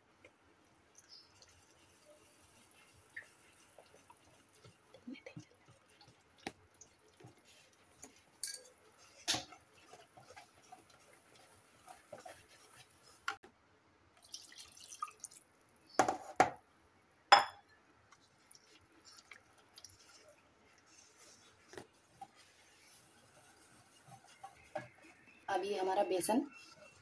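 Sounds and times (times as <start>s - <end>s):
whisk stirring wet batter: 0.9s - 13.4s, 18.1s - 27.0s
whisk clicking against steel bowl: 2.6s - 13.4s.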